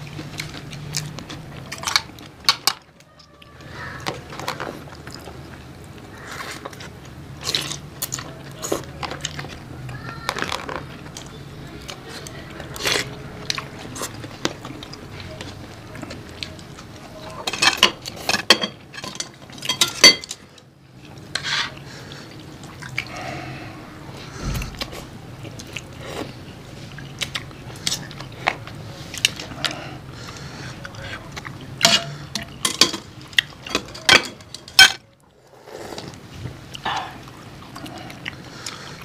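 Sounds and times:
chopsticks clinking against bowls: 0:17.4 - 0:20.4, 0:31.8 - 0:35.0.

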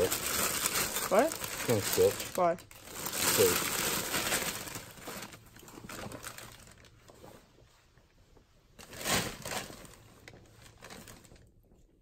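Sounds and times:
clothing and plastic bags rustling: 0:00.0 - 0:12.0.

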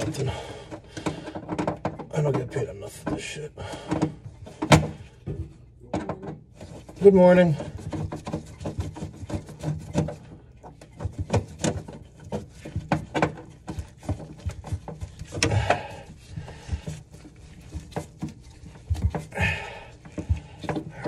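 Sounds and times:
rustling scrapes: 0:06.4 - 0:21.0.

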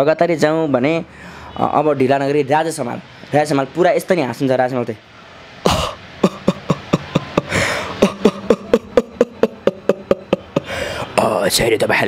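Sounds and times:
breathy gasp: 0:01.1 - 0:01.6, 0:07.5 - 0:08.0, 0:10.6 - 0:11.2
man chuckling: 0:05.6 - 0:11.1.

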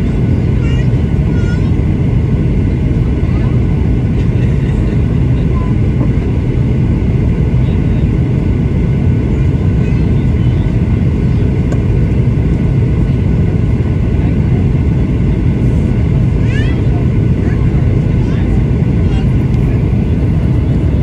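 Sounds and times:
airplane cabin rumble: 0:00.0 - 0:21.0
jet engine: 0:00.0 - 0:21.0
rushing airflow: 0:10.7 - 0:21.0.

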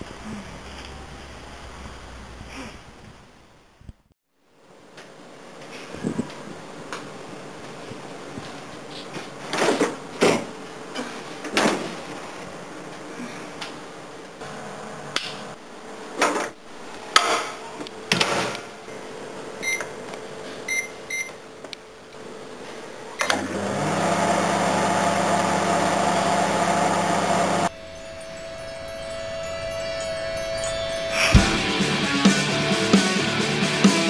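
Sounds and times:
microwave keypad beeps: 0:19.6 - 0:19.9, 0:20.7 - 0:21.4
microwave humming: 0:23.1 - 0:30.0.

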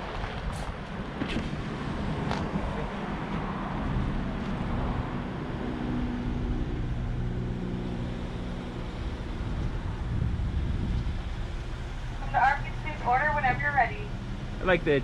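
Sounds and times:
car engine running: 0:00.9 - 0:15.0
droning tone: 0:05.3 - 0:14.6.

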